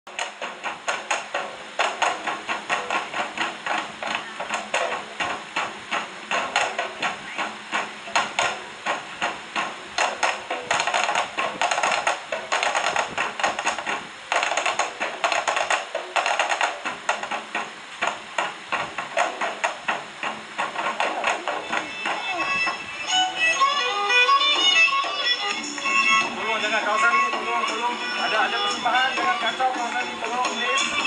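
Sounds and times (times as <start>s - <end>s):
rhythmic hand percussion slaps: 0.1s - 31.0s.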